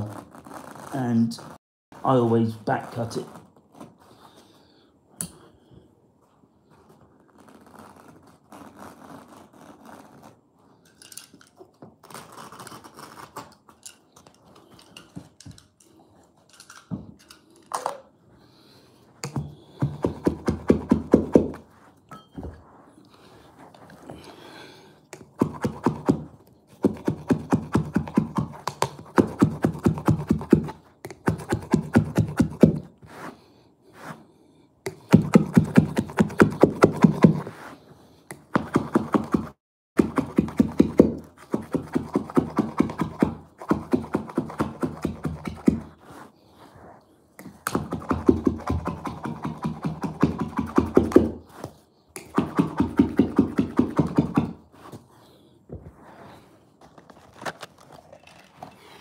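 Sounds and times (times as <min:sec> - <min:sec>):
carpet knife cutting carpet: 0:07.2 - 0:10.5, 0:12.0 - 0:13.6, 0:19.2 - 0:21.7, 0:22.7 - 0:34.2, 0:34.9 - 0:55.1.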